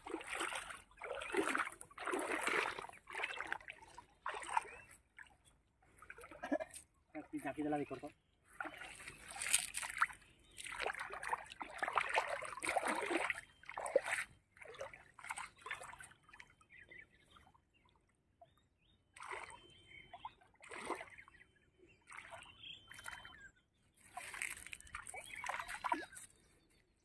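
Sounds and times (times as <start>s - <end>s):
water splashing and sloshing: 0.0s - 18.4s, 19.1s - 26.7s.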